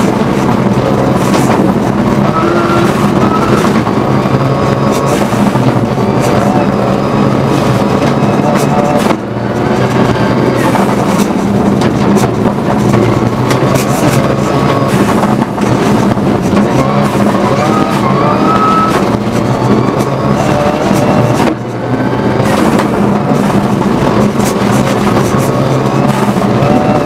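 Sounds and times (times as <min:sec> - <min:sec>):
rally car engine running hard: 0:00.0 - 0:27.0
tyre and road noise: 0:00.0 - 0:27.0.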